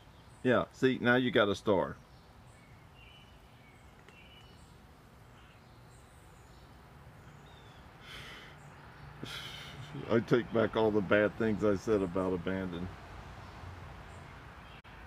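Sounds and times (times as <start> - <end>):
high bird chirps: 1.9 - 9.0.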